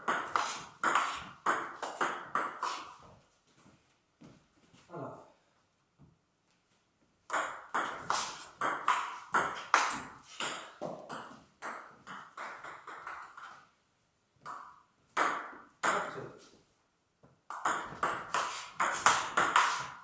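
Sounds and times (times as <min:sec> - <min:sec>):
table tennis ball hits: 0:00.0 - 0:03.1, 0:07.3 - 0:13.6, 0:14.4 - 0:16.2, 0:17.5 - 0:20.0.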